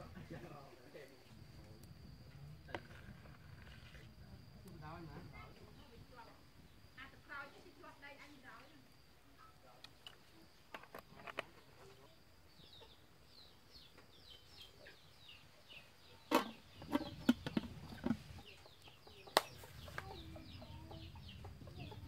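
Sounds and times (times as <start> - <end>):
chickens clucking: 15.6 - 22.0.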